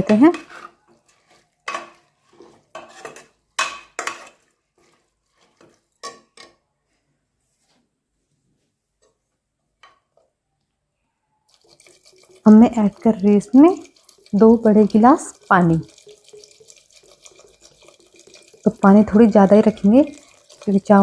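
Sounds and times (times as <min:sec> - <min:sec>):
ladle scraping metal pot: 0:00.0 - 0:06.6, 0:11.5 - 0:21.0.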